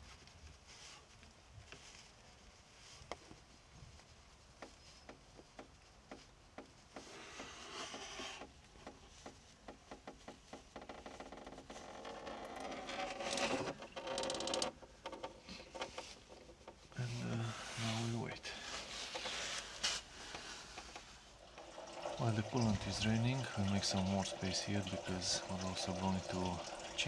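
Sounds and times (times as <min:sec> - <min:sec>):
liquid draining into plastic pan: 0:20.8 - 0:27.0.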